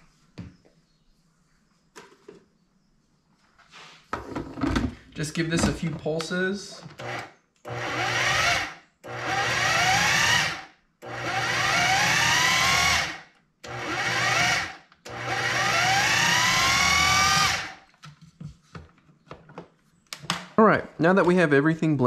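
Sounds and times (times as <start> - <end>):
food processor motor whining: 6.9 - 17.8.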